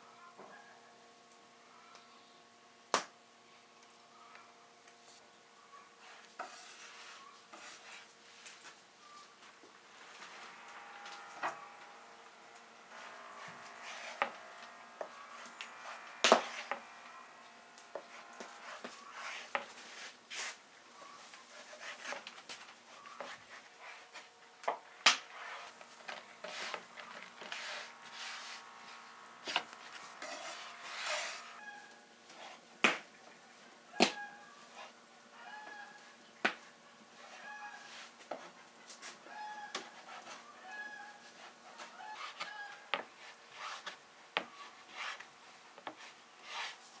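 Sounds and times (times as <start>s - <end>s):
soft rubbing sounds: 6.0s - 17.3s, 17.9s - 24.4s, 25.2s - 32.7s, 39.9s - 47.0s.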